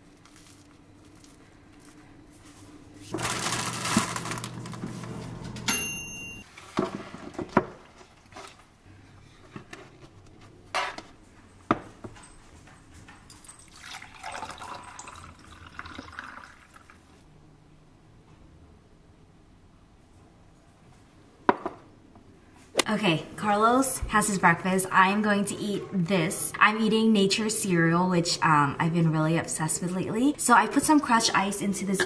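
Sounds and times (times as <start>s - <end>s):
juice pouring into glass: 13.4s - 17.2s.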